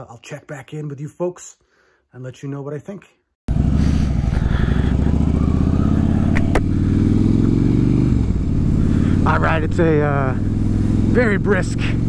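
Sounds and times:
motorcycle engine running: 0:03.5 - 0:12.0.

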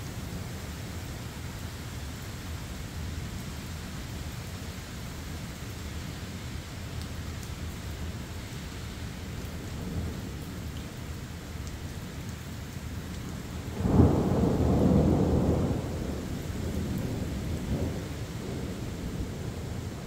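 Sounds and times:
steady rain: 0:00.0 - 0:20.0
thunder clap rumbling: 0:13.7 - 0:20.0.

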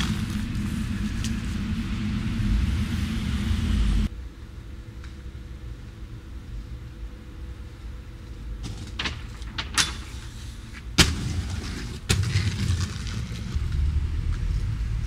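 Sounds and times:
skate wheels rolling on concrete: 0:00.0 - 0:04.1, 0:07.8 - 0:15.0
inline skates knocking on ground: 0:10.9 - 0:13.6.

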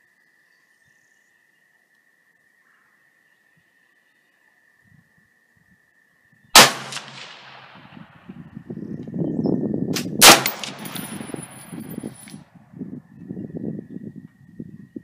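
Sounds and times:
rifle shots: 0:06.6 - 0:08.0, 0:10.0 - 0:11.6.

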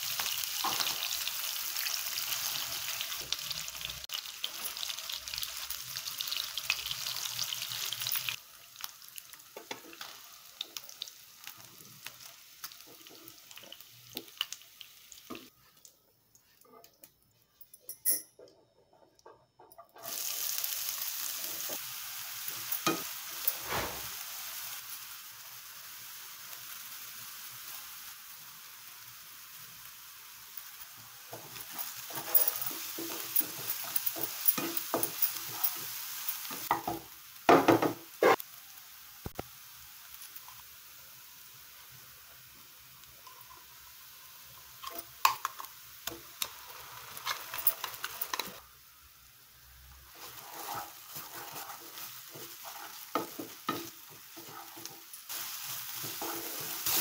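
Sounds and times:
onions sizzling in oil: 0:00.0 - 0:16.7, 0:20.0 - 0:57.0
spatula scraping pan: 0:31.3 - 0:36.0, 0:50.1 - 0:57.0.

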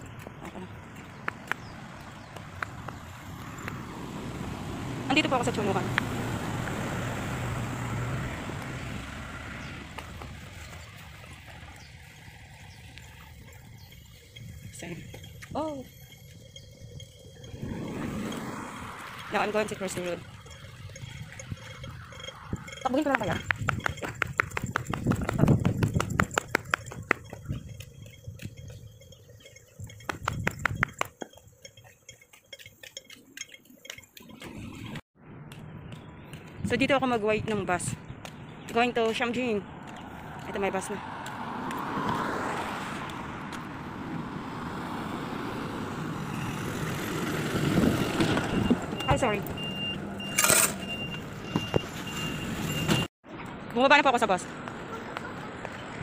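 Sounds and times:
footsteps on brick pavement: 0:00.0 - 0:03.9, 0:23.0 - 0:29.2, 0:35.4 - 0:43.8, 0:53.3 - 0:56.0
passing vehicle engine and tyres: 0:00.0 - 0:31.6, 0:33.2 - 0:56.0.

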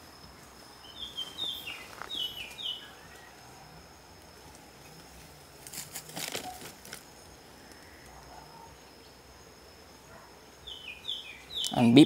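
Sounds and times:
rustling crackles: 0:04.3 - 0:08.2.

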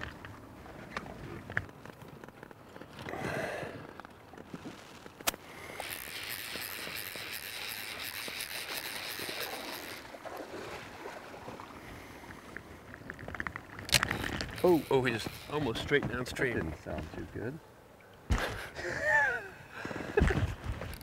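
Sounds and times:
fly reel drag buzzing: 0:05.6 - 0:10.2, 0:14.0 - 0:15.7.

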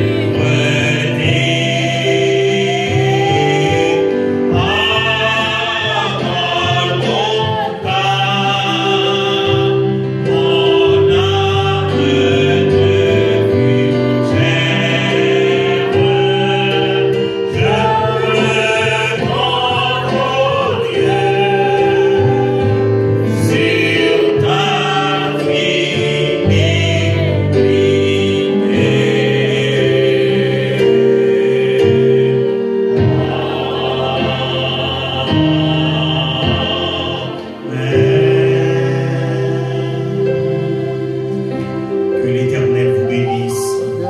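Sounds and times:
group singing a hymn: 0:00.0 - 0:44.0
instrumental accompaniment in held chords: 0:00.0 - 0:44.0.

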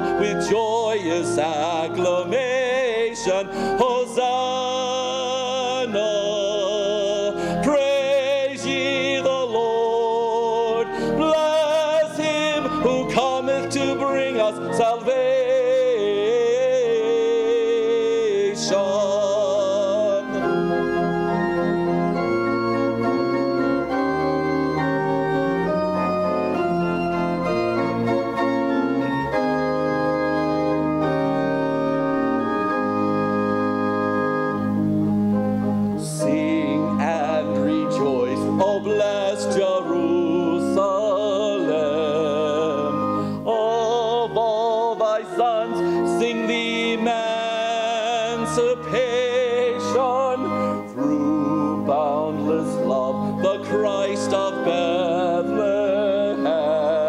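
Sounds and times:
person singing: 0:00.0 - 0:21.1, 0:36.0 - 0:57.0
sustained worship chords: 0:00.0 - 0:57.0.

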